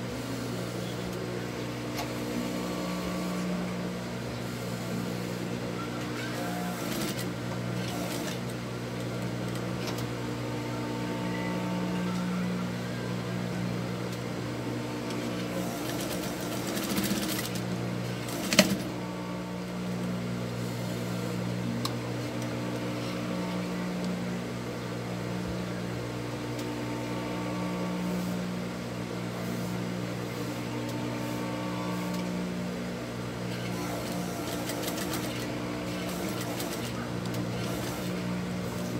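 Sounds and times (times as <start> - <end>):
sewing machine stitching: 6.2 - 8.6, 15.1 - 19.1, 33.5 - 38.9.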